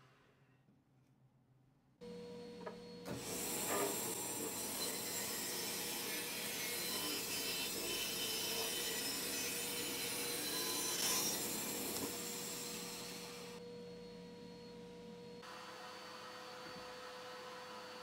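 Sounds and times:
band saw cutting plywood: 3.1 - 13.6.

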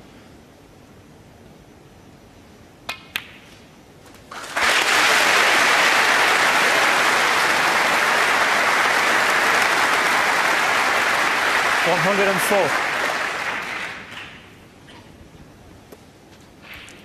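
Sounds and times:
crowd applause: 4.3 - 14.5.

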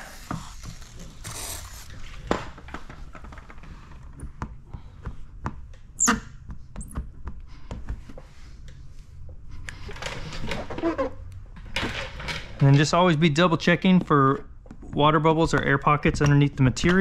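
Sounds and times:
squeegee squeak: 6.0 - 7.0.

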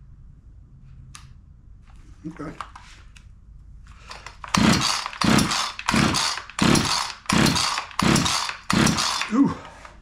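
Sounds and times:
chainsaw pull starter whirring: 4.1 - 9.7.

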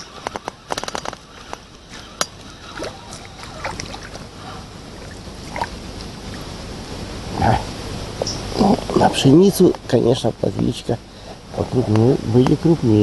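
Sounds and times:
outdoor noise: 0.0 - 13.0
small water splashes: 1.9 - 6.5.

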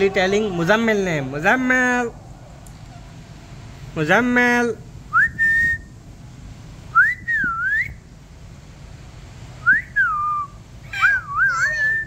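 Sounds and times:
short whistles: 5.1 - 6.0, 6.9 - 8.1, 9.6 - 12.0.

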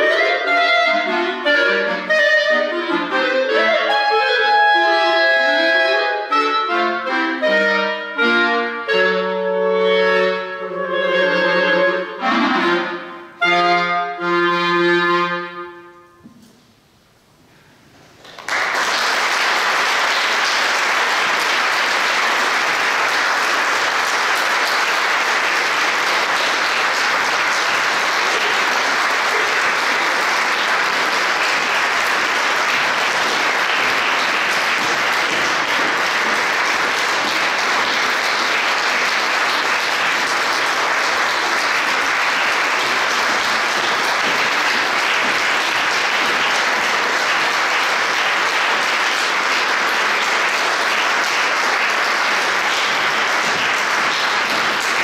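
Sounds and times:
audience applauding: 18.1 - 55.0.

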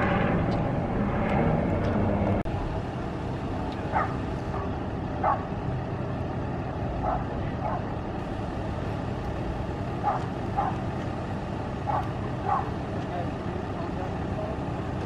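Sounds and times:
vehicle engine idling: 0.0 - 15.0
dog barking: 3.9 - 5.5, 7.0 - 7.9, 10.0 - 10.8, 11.9 - 12.8.

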